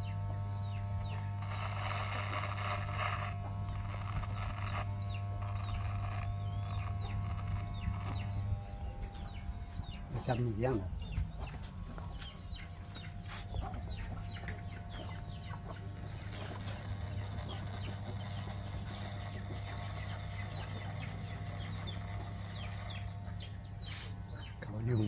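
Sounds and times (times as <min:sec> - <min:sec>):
electric hair clippers humming: 0:00.0 - 0:25.0
chickens clucking and chirping: 0:11.0 - 0:15.9.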